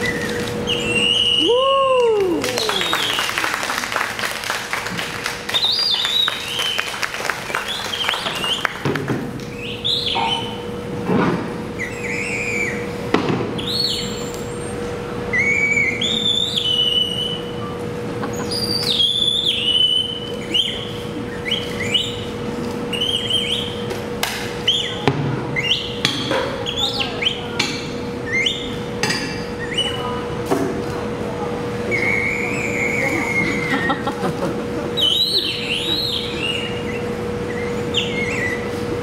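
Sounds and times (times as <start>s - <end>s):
bird-like chirps and whistles: 0.0s - 1.5s, 5.5s - 7.0s, 7.6s - 8.8s, 9.5s - 10.6s, 11.8s - 12.8s, 13.6s - 17.8s, 18.4s - 23.9s, 24.6s - 26.0s, 26.6s - 27.6s, 28.2s - 28.8s, 29.5s - 30.2s, 31.9s - 33.7s, 35.0s - 38.8s
steady hum: 0.0s - 39.0s.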